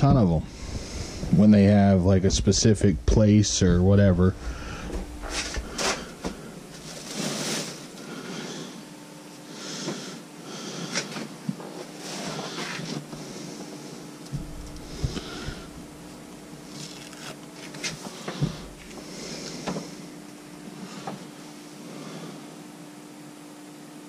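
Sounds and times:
rustling fabric and bags: 4.8 - 8.1.

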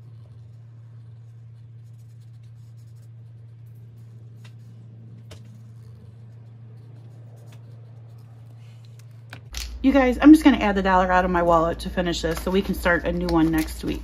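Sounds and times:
marker scratching on paper: 0.0 - 9.3
low hum: 0.0 - 14.0.

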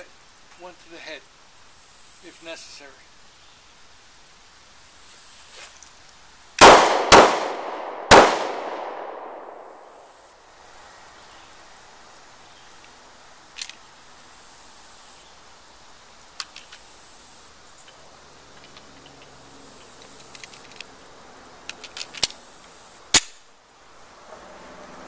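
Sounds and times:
high insect buzz: 0.0 - 6.6, 9.1 - 25.0
pistol metallic clicks: 21.6 - 22.5, 23.1 - 23.5.

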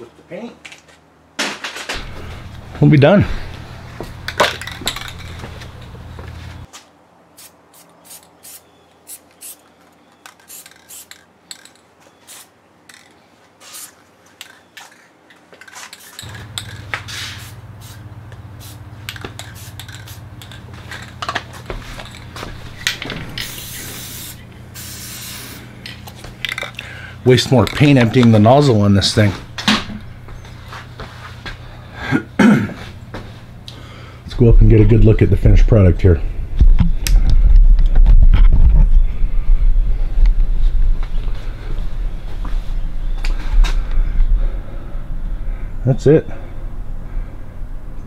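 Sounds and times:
aerosol spray can hissing: 7.4 - 9.6, 10.4 - 11.2, 12.3 - 12.5, 13.6 - 14.0, 16.0 - 20.6, 23.3 - 25.7.

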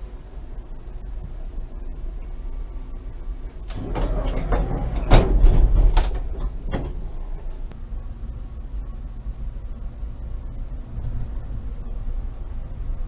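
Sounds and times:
tram clatter with sharp knocks: 3.6 - 7.8
tram humming: 3.6 - 8.3.

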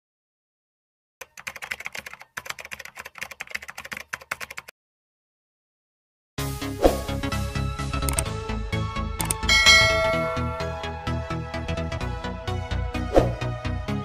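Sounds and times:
typing on computer keyboard: 1.2 - 4.7.

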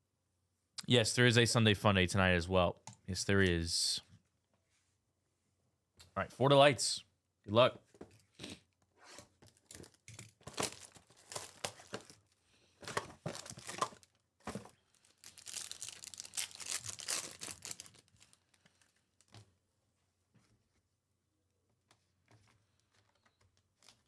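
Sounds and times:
plastic wrapping ripping and rustling: 9.4 - 12.4, 13.2 - 19.3.

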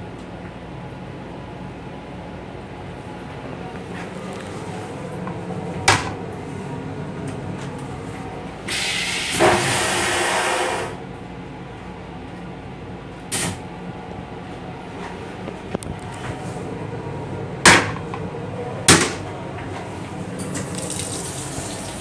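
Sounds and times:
vacuum toilet flushing whoosh: 8.7 - 11.0
toilet flush click: 20.4 - 22.0.

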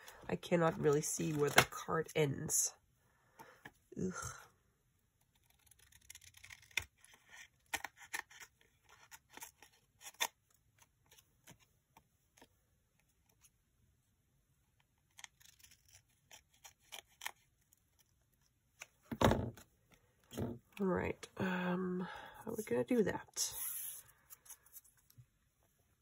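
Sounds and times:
scissors snipping paper: 5.2 - 10.4.

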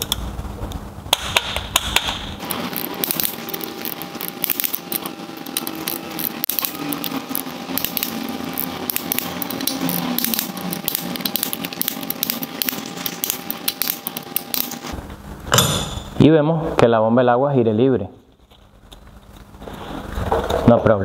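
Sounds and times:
torque wrench clicking: 1.1 - 14.9.

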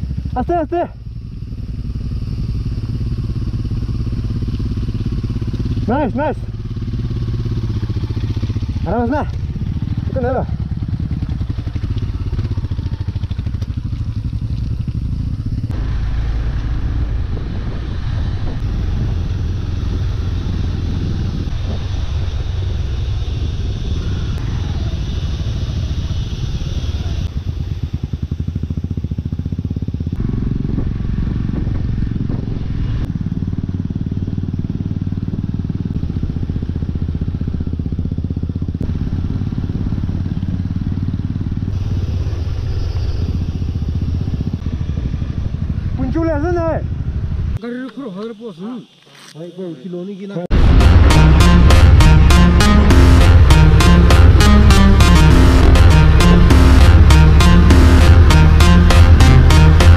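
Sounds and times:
motorcycle engine rumbling: 0.0 - 59.9.

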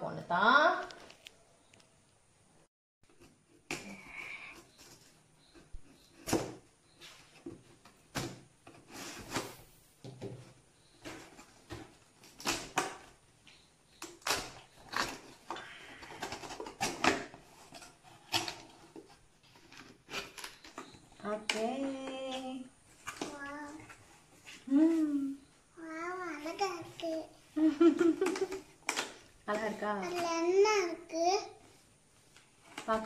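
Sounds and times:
packing tape slitting: 14.0 - 20.9.

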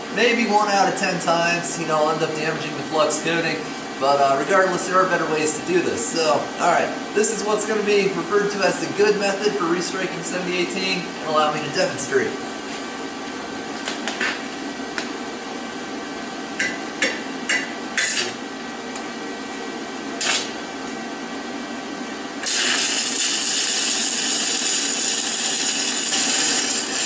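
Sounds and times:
welding electrode tapping and scraping steel: 17.5 - 18.4, 20.2 - 20.5, 22.4 - 27.0
welding arc hissing: 18.0 - 18.4, 20.2 - 20.6, 22.4 - 27.0.

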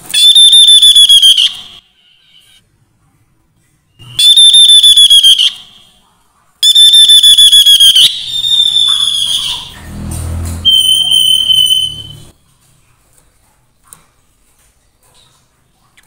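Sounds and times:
bird calling with whistled trills: 8.1 - 9.8, 10.7 - 12.3.

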